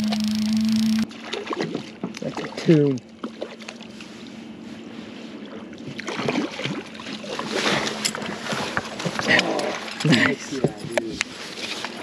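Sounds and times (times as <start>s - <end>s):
water splashing: 0.0s - 4.0s, 5.4s - 10.5s
boat motor humming: 0.0s - 12.0s.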